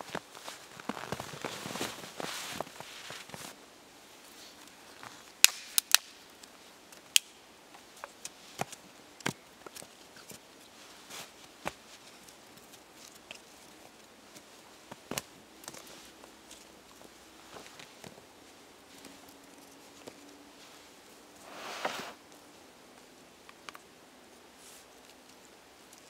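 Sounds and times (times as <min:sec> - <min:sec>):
rustle: 0:00.0 - 0:26.0
sticks cracking: 0:05.4 - 0:07.4.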